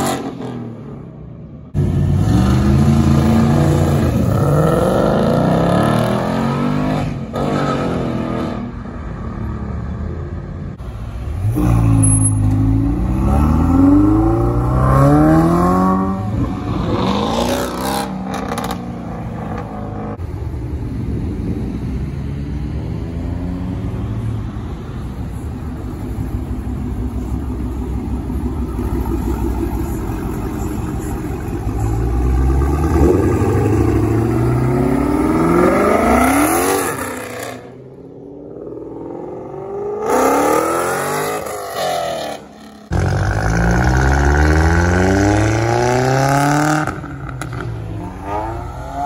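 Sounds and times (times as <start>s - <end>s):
car engine revving and accelerating: 1.8s - 8.8s, 11.4s - 20.2s, 31.7s - 49.0s.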